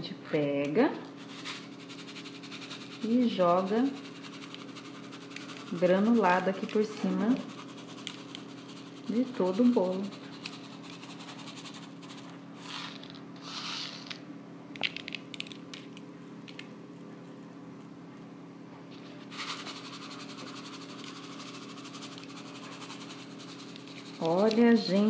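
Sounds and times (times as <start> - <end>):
low electrical hum: 0.0 - 25.0.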